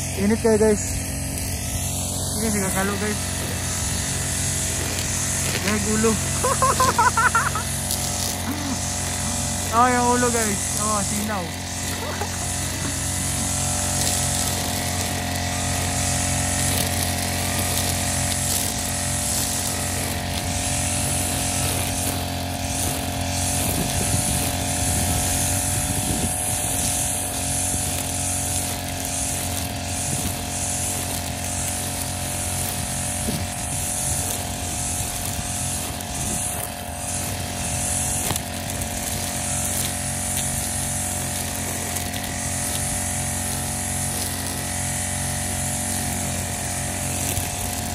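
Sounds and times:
brush cutter engine running: 0:00.0 - 0:47.9
cutting head through grass: 0:00.0 - 0:47.9.

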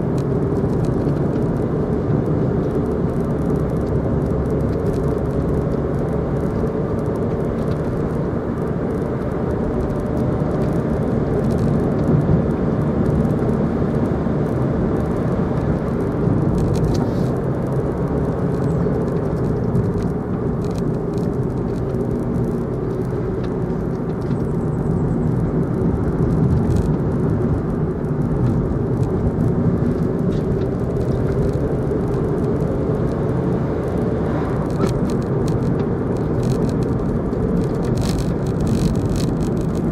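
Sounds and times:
in-car engine and tyre rumble: 0:00.0 - 0:39.9.

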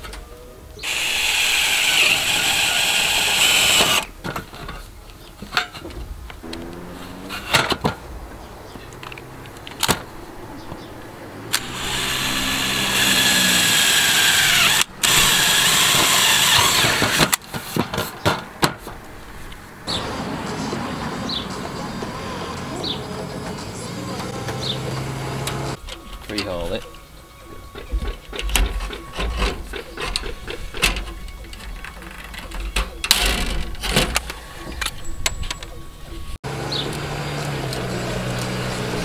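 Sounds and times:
cordless drill boring: 0:00.8 - 0:04.1, 0:11.5 - 0:17.2.

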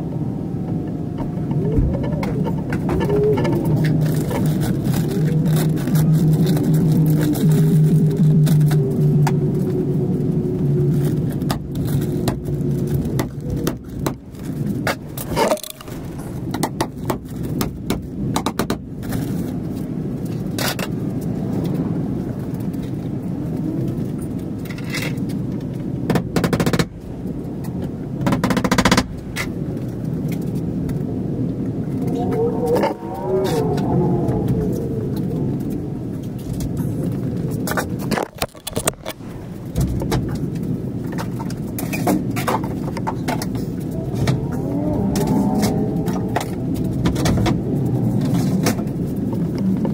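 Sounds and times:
humming tone: 0:00.0 - 0:13.8, 0:31.7 - 0:40.5
background hum: 0:00.0 - 0:49.9
scraping: 0:11.0 - 0:17.6
sharp knocks and clicks: 0:28.2 - 0:29.5.

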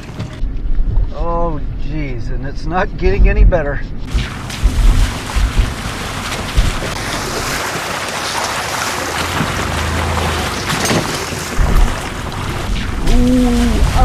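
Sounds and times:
tyres sloshing through mud: 0:04.1 - 0:14.0.

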